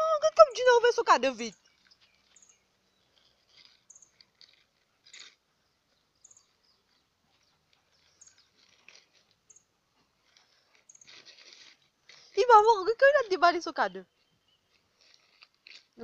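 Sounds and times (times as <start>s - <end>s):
high bird chirp: 1.5s - 3.1s, 3.9s - 4.2s, 6.2s - 8.6s
puppy chewing wrapping paper: 1.6s - 13.4s, 14.1s - 16.0s.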